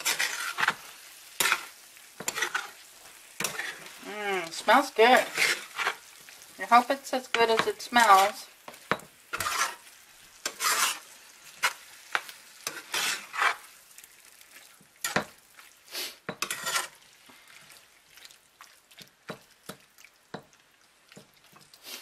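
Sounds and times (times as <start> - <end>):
metal utensil scraping frying pan: 0.0 - 13.8, 15.0 - 15.4, 16.0 - 17.8.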